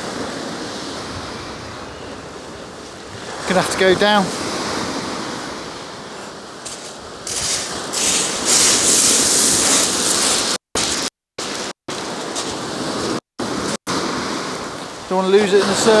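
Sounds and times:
surf breaking on shingle: 6.6 - 12.7.

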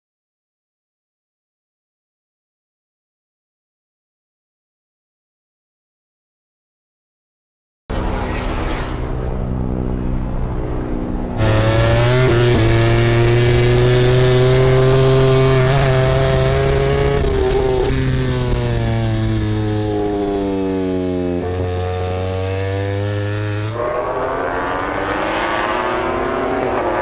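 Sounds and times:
racing motorcycle engines revving: 7.9 - 27.0.

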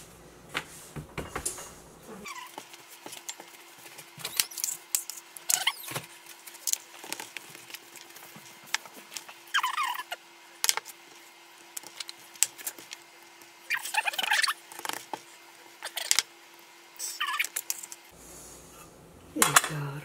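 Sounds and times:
faint steady hum: 0.0 - 20.0
dog whining: 2.1 - 2.6, 5.5 - 6.0, 9.5 - 10.2, 17.0 - 17.6.

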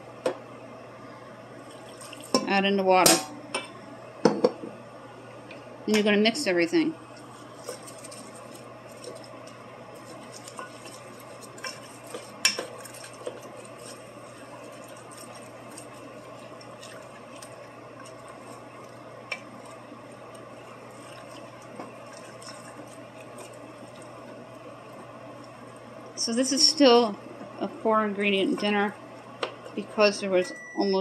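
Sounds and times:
steady low hum: 0.0 - 31.0
wooden spoon stirring wet food: 1.6 - 2.6, 7.1 - 30.4.

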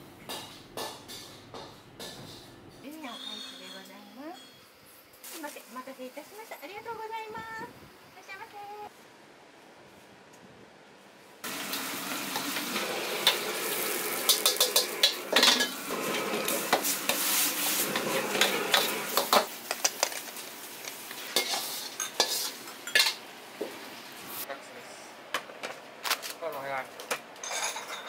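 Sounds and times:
food sizzling in hot oil: 11.4 - 24.5
metal ladle scraping a wok: 13.2 - 19.5, 21.1 - 23.2.

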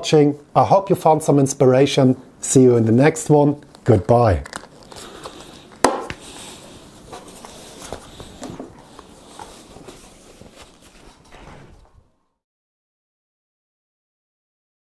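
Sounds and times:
rustling and scuffing: 6.1 - 12.1.

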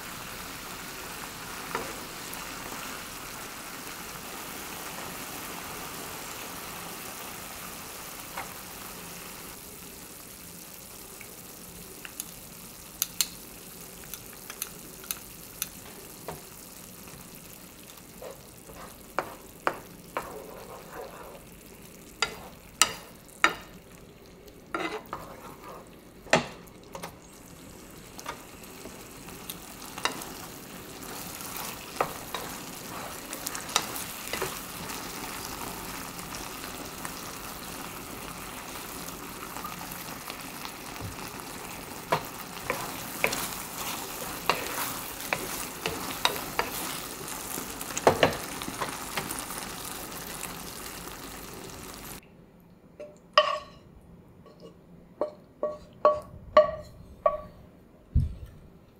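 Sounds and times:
food sizzling in a frying pan: 0.0 - 52.2
wooden spatula scraping and tapping: 18.2 - 21.4, 22.2 - 23.7, 24.7 - 27.2, 31.1 - 35.0, 42.0 - 47.1, 54.5 - 57.5
pan clinking on ceramic bowl: 53.0 - 53.8, 54.5 - 57.6.

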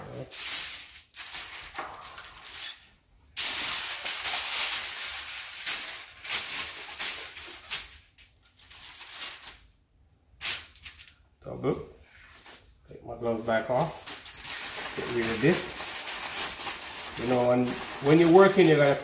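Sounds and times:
aluminium foil crinkling: 0.3 - 9.8, 10.4 - 11.2, 13.4 - 19.0.

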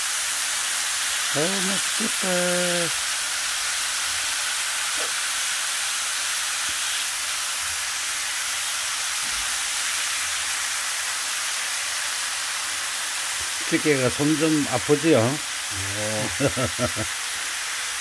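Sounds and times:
meat sizzling in a frying pan: 0.0 - 18.0.

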